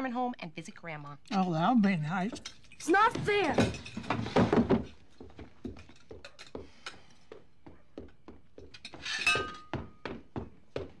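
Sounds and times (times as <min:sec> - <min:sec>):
cutlery clinking on plates: 0:05.7 - 0:07.0, 0:08.8 - 0:09.9
loud ringing clink: 0:09.1 - 0:09.8.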